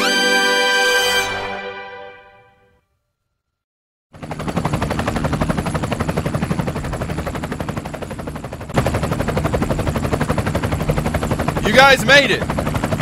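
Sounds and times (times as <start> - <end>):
helicopter rotor blades chopping: 4.1 - 13.0.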